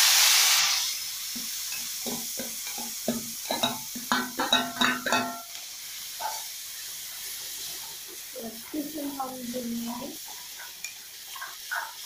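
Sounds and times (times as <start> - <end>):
low frying sizzle: 0.0 - 12.0
spoon clinking on steel plate: 2.6 - 5.5.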